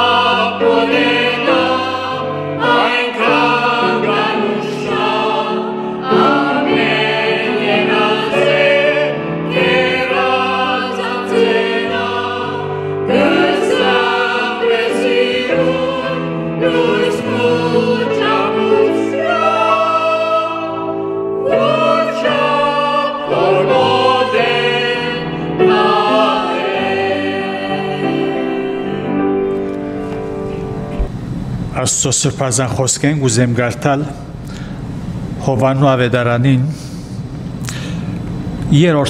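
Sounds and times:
vocal group singing hymn: 0:00.0 - 0:29.8
piano accompaniment: 0:00.0 - 0:31.8.

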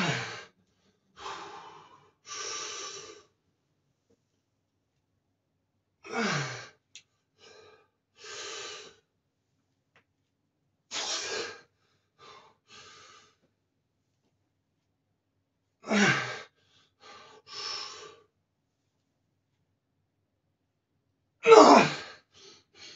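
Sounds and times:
man breathing hard: 0:00.0 - 0:03.3, 0:07.4 - 0:09.0, 0:10.9 - 0:13.4, 0:15.9 - 0:18.2.

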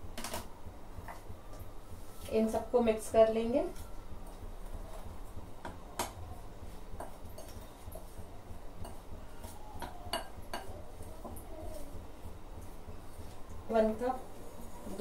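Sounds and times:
spoon stirring dry powder: 0:03.7 - 0:12.0.

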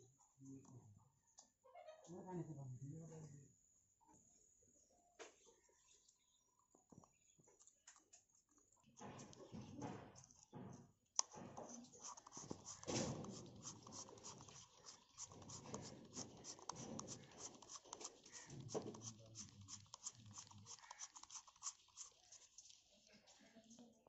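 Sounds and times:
gloved hands rubbing binoculars: 0:11.2 - 0:23.4.

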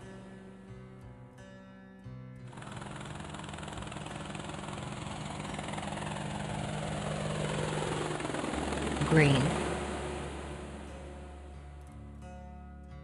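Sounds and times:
helicopter rotor chop: 0:02.5 - 0:11.8
helicopter engine hum: 0:02.5 - 0:11.9.

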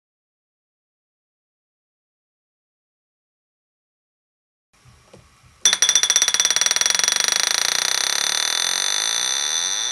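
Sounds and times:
alarm bell ringing: 0:05.6 - 0:09.9.

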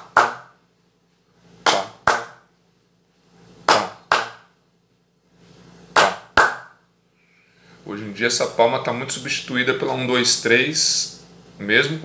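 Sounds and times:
hands clapping: 0:00.0 - 0:00.5, 0:01.6 - 0:02.4, 0:03.7 - 0:04.5, 0:06.0 - 0:06.8.

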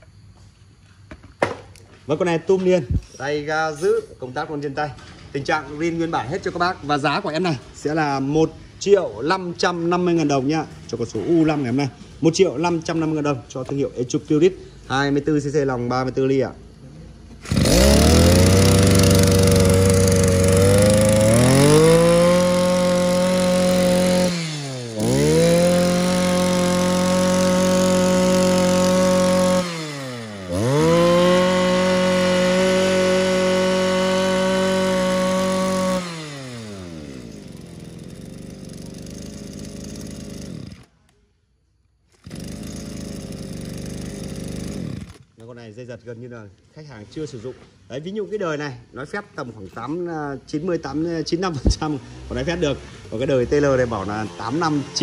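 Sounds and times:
brush cutter engine revving: 0:17.3 - 0:41.1, 0:42.1 - 0:45.5, 0:51.0 - 0:55.0.

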